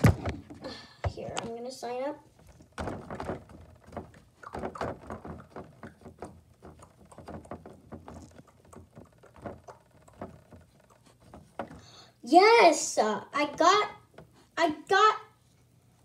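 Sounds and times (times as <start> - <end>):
tapping and rustling on plastic: 2.4 - 11.9.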